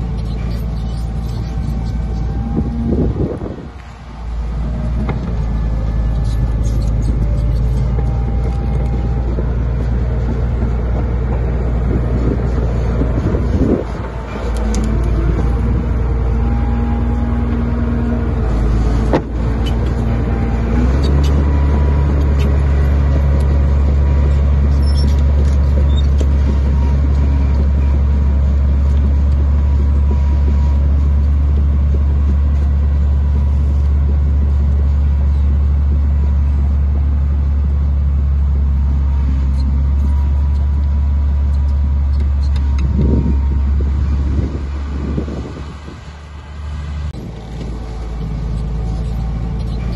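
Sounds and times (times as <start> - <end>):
heavy diesel engine running: 0.0 - 49.9.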